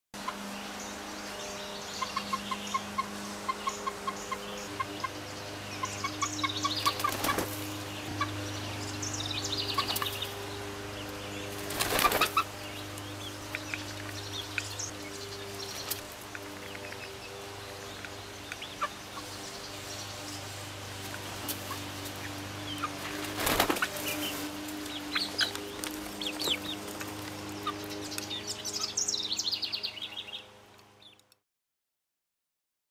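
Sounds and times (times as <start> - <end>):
wing flapping: 6.6 - 8.0, 9.6 - 10.4, 11.4 - 12.6, 21.0 - 27.8.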